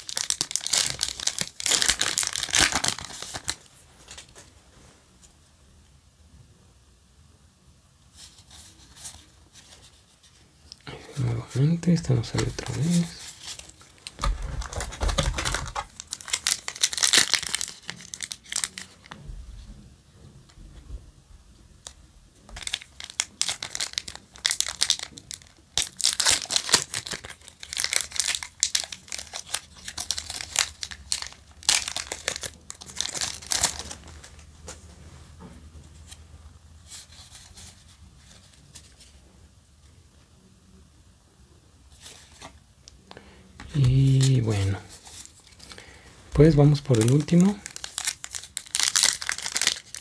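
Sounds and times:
foil wrapper crinkling and tearing: 0:00.0 - 0:04.3, 0:11.9 - 0:19.2, 0:21.8 - 0:34.5, 0:43.1 - 0:50.0.

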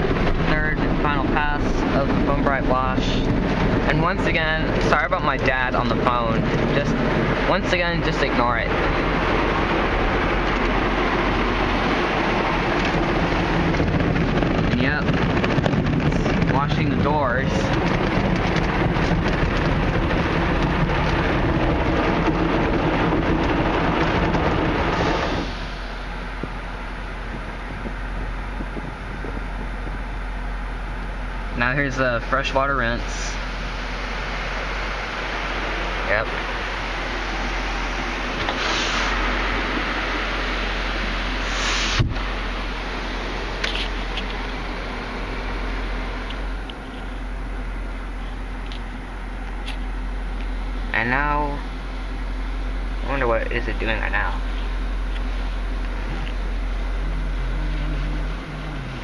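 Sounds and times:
low hum: 0:00.0 - 0:59.0
car wash brushes scrubbing: 0:15.4 - 0:27.8, 0:33.3 - 0:49.6, 0:54.0 - 0:59.0.

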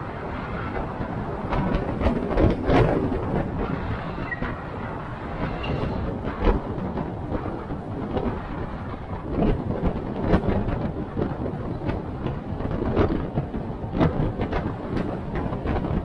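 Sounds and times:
engine and tyres rumbling: 0:00.0 - 0:16.0.

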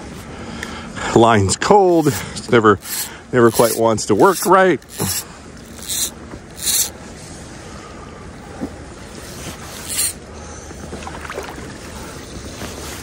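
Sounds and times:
fly line hissing through guides: 0:02.8 - 0:06.9, 0:09.2 - 0:10.2
river flowing: 0:09.8 - 0:12.2.

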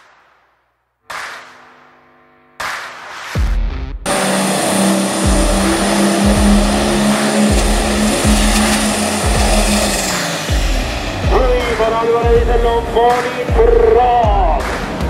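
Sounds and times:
deep bass music beat: 0:03.4 - 0:15.0
engine at high revs: 0:04.1 - 0:13.4.

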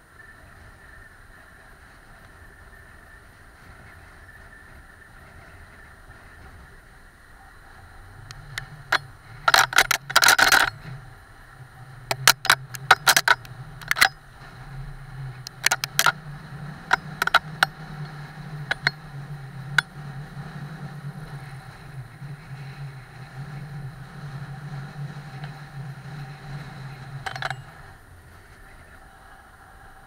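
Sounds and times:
steady low hum: 0:00.0 - 0:30.0
camera mount clicks and rattles: 0:08.3 - 0:10.8, 0:12.1 - 0:14.2, 0:15.5 - 0:16.2, 0:16.9 - 0:17.7, 0:18.7 - 0:19.0, 0:27.2 - 0:27.7.

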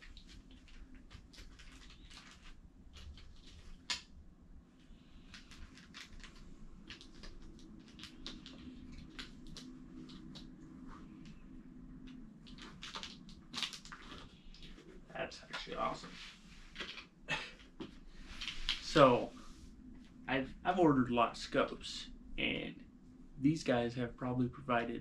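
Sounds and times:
hands rustling foam packaging: 0:00.0 - 0:04.0, 0:05.2 - 0:10.6, 0:12.1 - 0:17.0.

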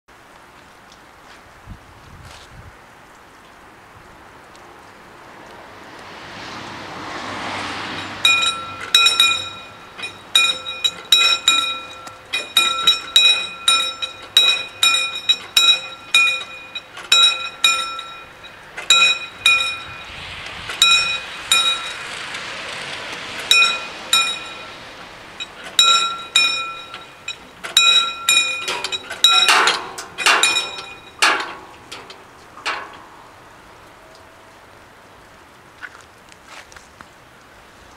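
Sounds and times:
level crossing bells ringing: 0:07.9 - 0:20.2, 0:20.8 - 0:22.4, 0:23.4 - 0:33.0.

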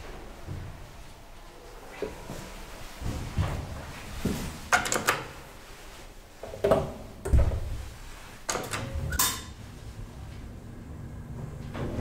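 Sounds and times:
elevator doors clunking and rattling: 0:08.5 - 0:12.0.

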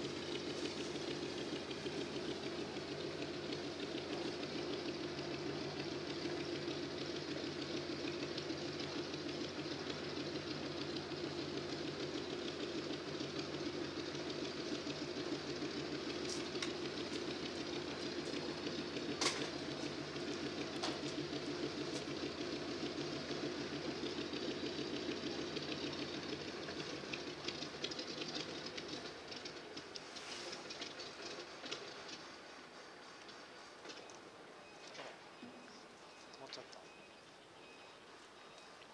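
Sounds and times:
radial aircraft engine idling: 0:00.0 - 0:38.9.

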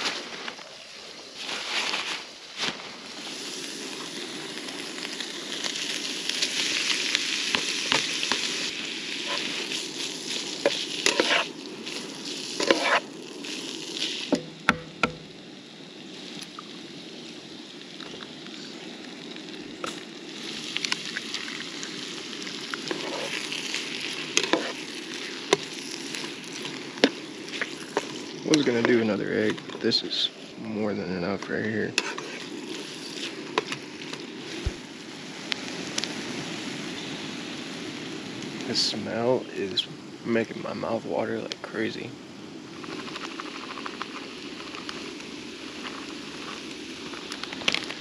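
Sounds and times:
food sizzling in a skillet: 0:00.0 - 0:48.0
metal spatula scraping: 0:10.6 - 0:11.5, 0:12.6 - 0:13.0, 0:22.9 - 0:23.4, 0:24.4 - 0:24.8, 0:32.0 - 0:32.5.

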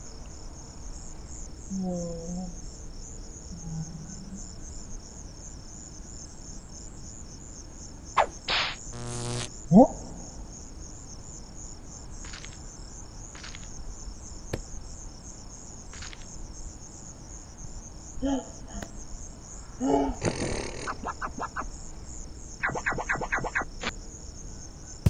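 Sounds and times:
crickets chirping: 0:00.0 - 0:25.0
brief pitched sounds: 0:08.2 - 0:09.5.

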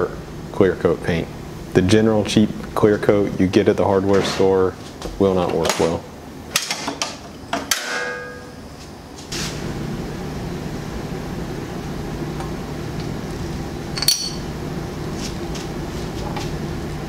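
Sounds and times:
steady low hum: 0:00.0 - 0:17.0
metal parts clinking: 0:14.0 - 0:14.4.

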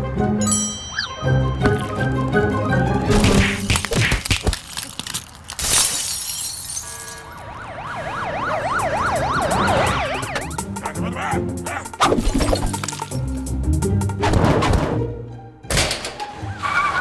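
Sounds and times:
siren-like alarm wailing: 0:00.9 - 0:03.2, 0:06.9 - 0:10.8
crash with glass shattering: 0:03.2 - 0:07.2.

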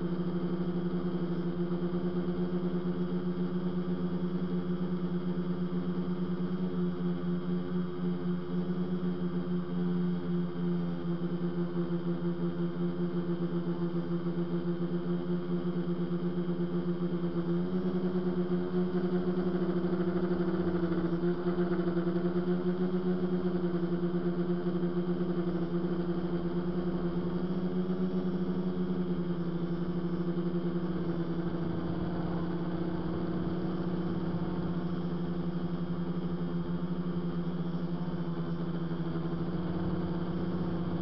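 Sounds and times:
drone motors and propellers humming: 0:00.0 - 0:41.0.

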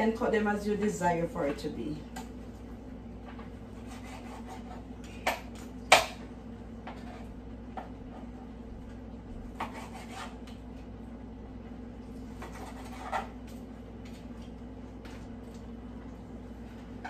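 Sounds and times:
steady low hum: 0:00.0 - 0:17.0
knife scraping on cutting board: 0:03.8 - 0:04.9, 0:06.8 - 0:07.4, 0:09.5 - 0:10.6, 0:12.4 - 0:13.6.

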